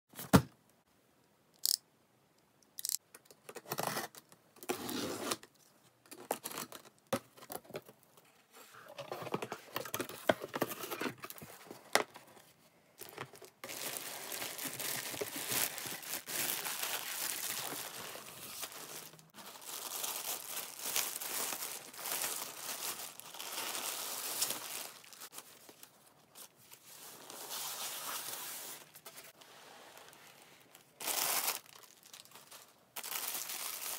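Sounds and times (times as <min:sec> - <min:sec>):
plastic bag crinkling: 0:13.0 - 0:25.8, 0:30.8 - 0:33.9.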